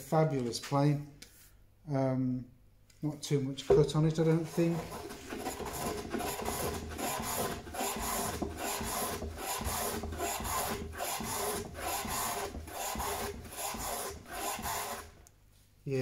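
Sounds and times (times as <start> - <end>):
hand plane shaving wood: 4.1 - 15.2.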